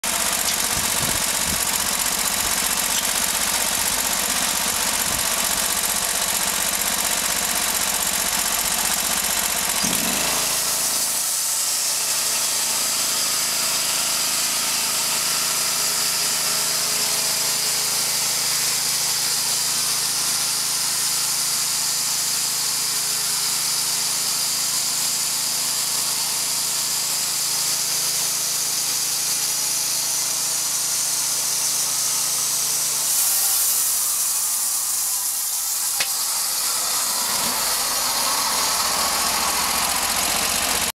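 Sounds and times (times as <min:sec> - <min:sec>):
gasoline engine running under load: 0:00.0 - 0:11.5, 0:35.8 - 0:40.9
saw blade cutting log: 0:00.0 - 0:40.9.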